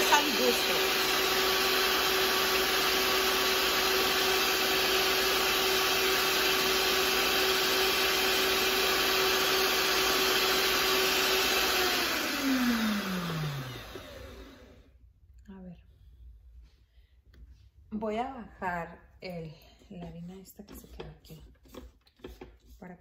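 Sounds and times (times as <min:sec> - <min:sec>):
stand mixer running: 0:00.0 - 0:14.8.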